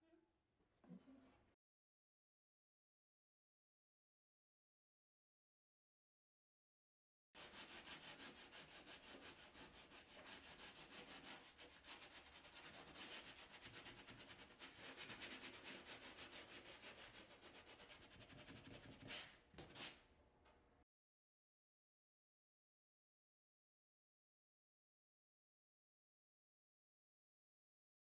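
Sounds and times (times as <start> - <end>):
sanding sponge scratching wall: 7.4 - 20.0.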